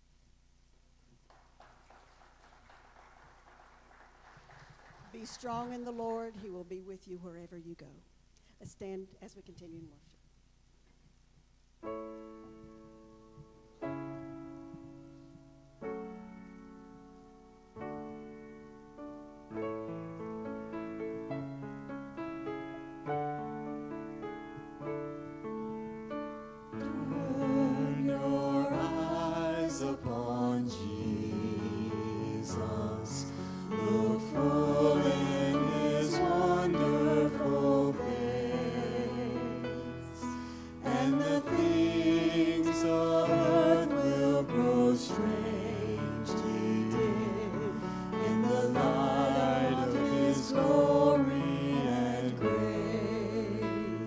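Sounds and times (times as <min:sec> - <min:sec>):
keyboard: 0:11.8 - 0:54.0
people singing: 0:26.8 - 0:54.0.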